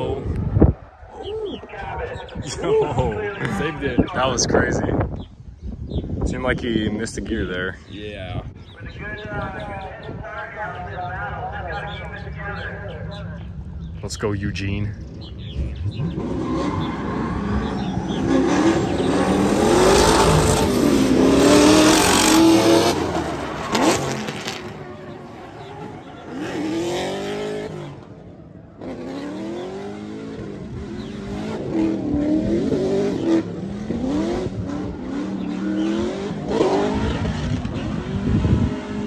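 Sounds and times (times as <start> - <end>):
car engine revving hard: 15.5 - 24.8, 25.6 - 28.1, 28.8 - 39.0.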